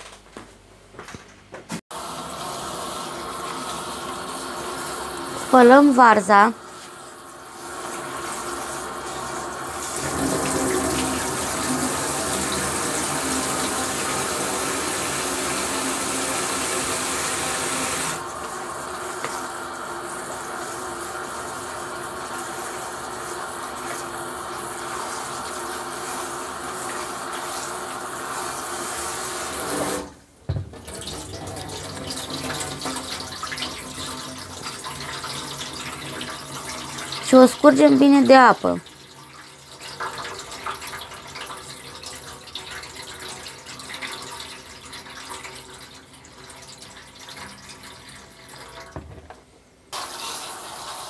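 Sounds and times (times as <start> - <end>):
water poured into sink: 6.8 - 30.1, 30.7 - 49.2
tap running into basin: 29.9 - 37.3.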